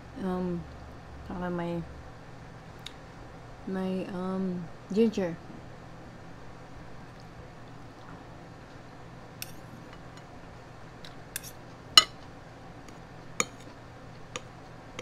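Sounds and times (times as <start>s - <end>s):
fork clinking on plate: 13.4s - 13.7s.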